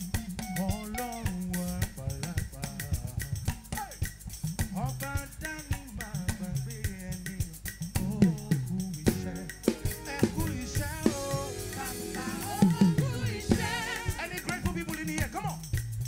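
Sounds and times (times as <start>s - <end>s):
drum kit beat: 0.0s - 16.0s
man singing into a microphone: 0.5s - 3.6s, 4.7s - 15.6s
bass line: 4.6s - 16.0s.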